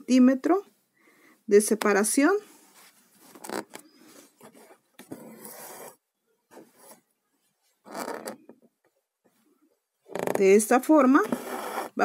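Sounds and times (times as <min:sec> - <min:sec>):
thread pulled through fabric: 0:02.4 - 0:07.0, 0:07.8 - 0:08.6, 0:10.1 - 0:12.0.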